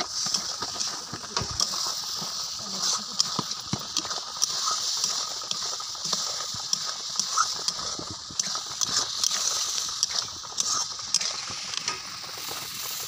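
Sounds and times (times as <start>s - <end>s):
food sizzling: 0.0s - 13.0s.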